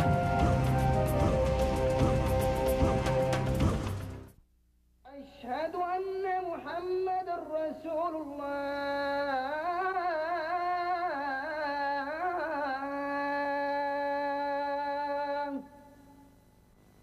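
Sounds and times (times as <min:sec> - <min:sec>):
woman singing: 0:05.4 - 0:15.7.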